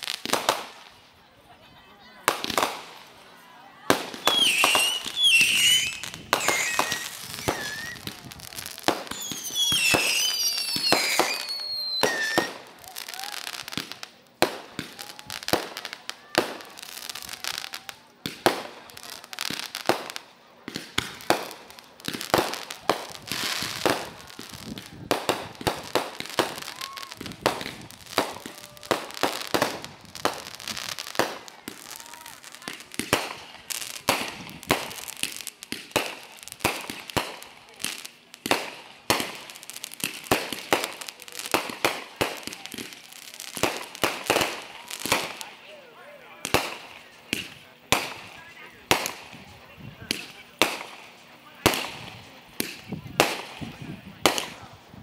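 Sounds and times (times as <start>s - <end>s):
fireworks bangs and crackles: 0.0s - 55.0s.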